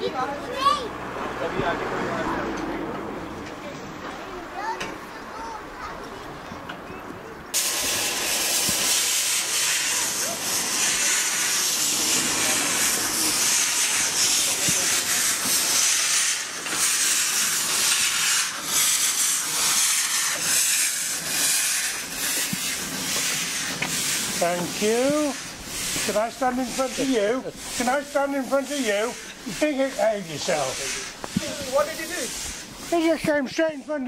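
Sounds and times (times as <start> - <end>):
steam locomotive hissing steam: 7.5 - 33.9.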